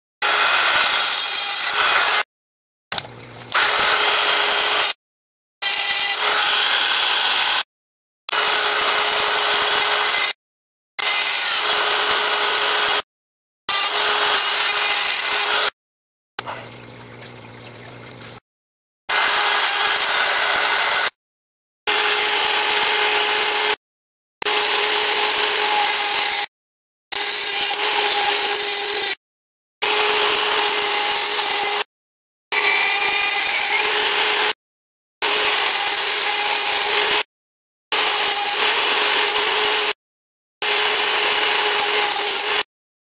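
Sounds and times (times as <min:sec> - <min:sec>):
rotary tool grinding plastic: 0:40.8 - 0:42.7.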